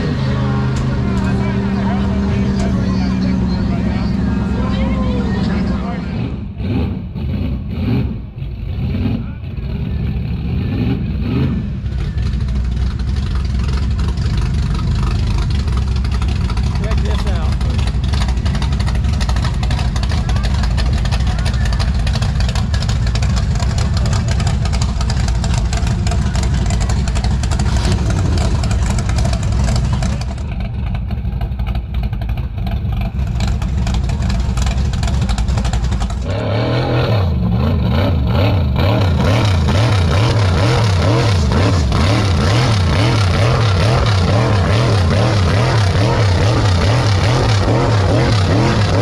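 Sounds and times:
truck engine revving: 0.0s - 49.0s.

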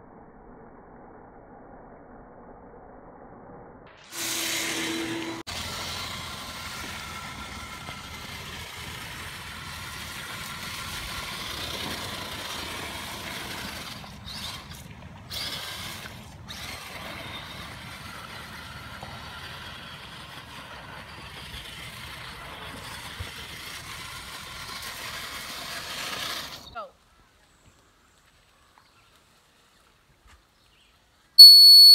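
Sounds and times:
electric motor whining: 4.1s - 25.5s.

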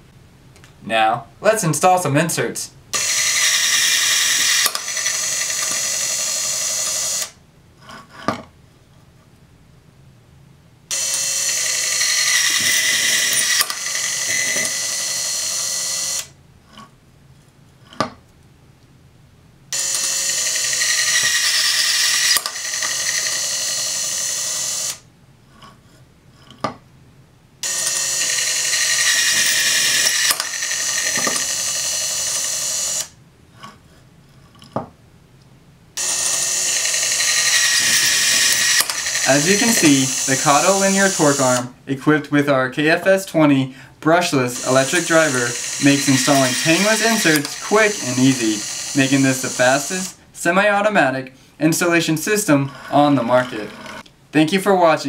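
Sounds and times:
electric driver motor whirring: 3.0s - 7.4s, 10.9s - 16.3s, 19.8s - 25.0s, 27.6s - 33.2s, 36.0s - 41.7s, 44.4s - 50.2s.

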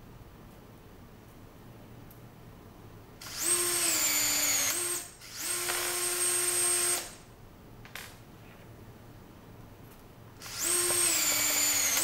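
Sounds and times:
rivet tool motor whining: 3.2s - 7.2s, 10.4s - 12.0s.

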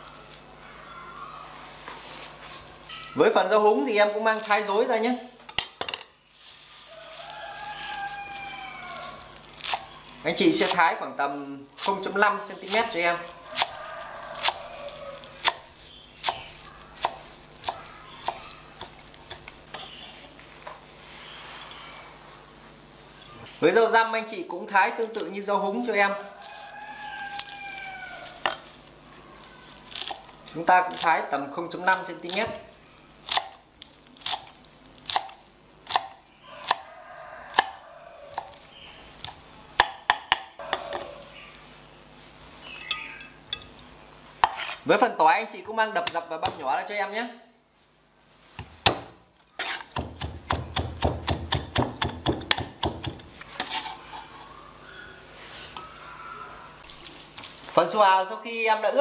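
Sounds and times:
knife chopping on wooden board: 48.6s - 53.7s.

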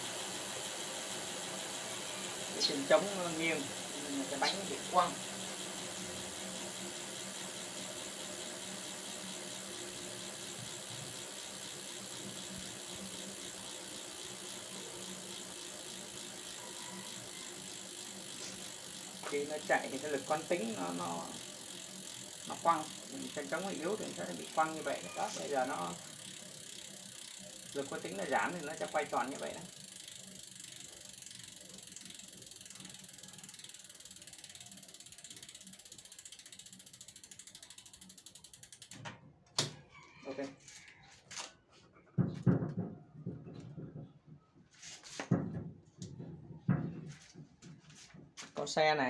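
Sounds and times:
bicycle freehub ticking: 0.0s - 39.1s.

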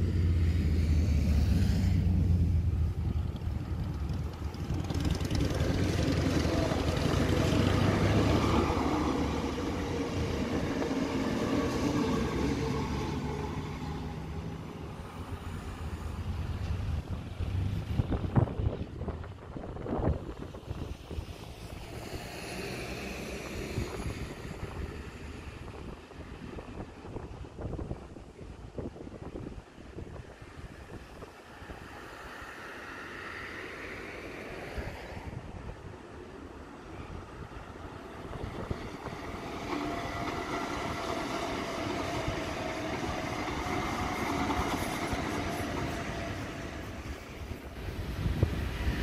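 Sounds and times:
high whine of train: 0.0s - 49.0s
wind buffeting microphone: 0.0s - 49.0s
distant electric train hiss: 5.6s - 16.9s, 36.6s - 49.0s.

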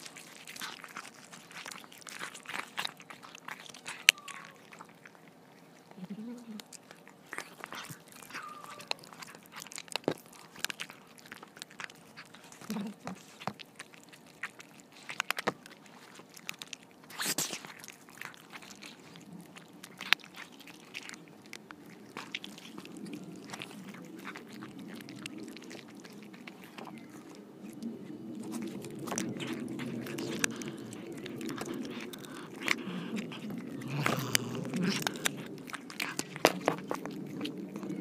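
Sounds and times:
cats crunching food: 0.0s - 38.0s.

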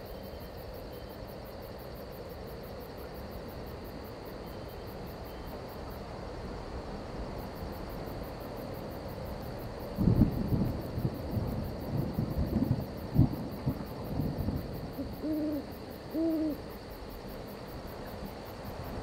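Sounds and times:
crickets chirping: 0.0s - 19.0s
thunder rolling: 10.0s - 15.2s.

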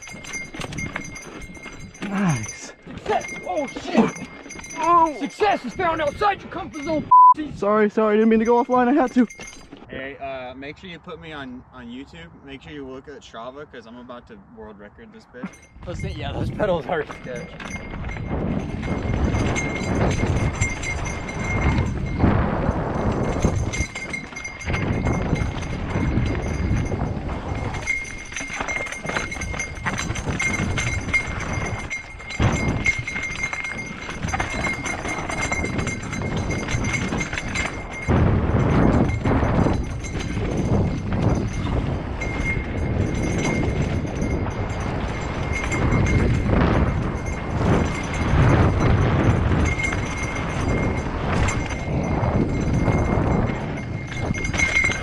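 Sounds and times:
bike rattling over bumps: 0.0s - 7.0s, 8.0s - 9.9s, 15.4s - 55.0s
bike tyres rolling over rock: 17.0s - 55.0s.

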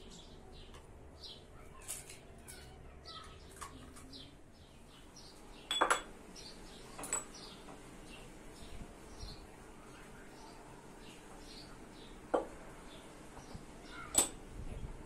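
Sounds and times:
small birds chirping: 0.0s - 15.0s
metal spoon clattering against bowl: 5.7s - 6.1s, 14.1s - 14.4s.

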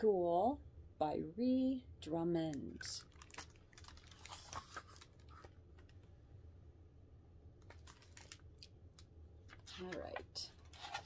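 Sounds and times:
book pages rustling: 3.1s - 6.0s, 7.6s - 8.4s, 9.4s - 11.0s.

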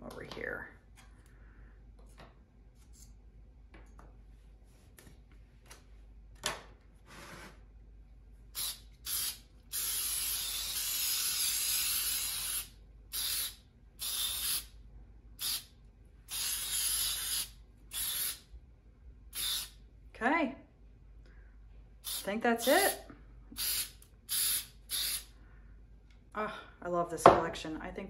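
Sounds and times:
aerosol can spraying: 8.6s - 14.7s, 15.4s - 15.7s, 16.3s - 18.4s, 19.4s - 19.8s, 22.0s - 23.0s, 23.6s - 25.3s.

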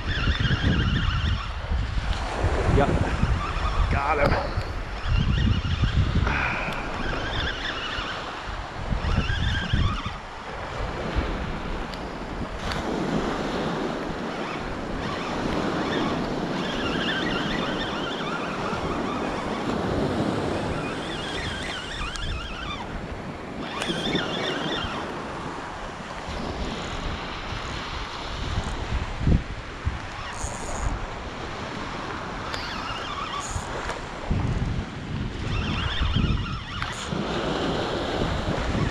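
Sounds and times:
wind buffeting microphone: 0.0s - 38.9s
surf breaking on beach: 36.9s - 38.9s.

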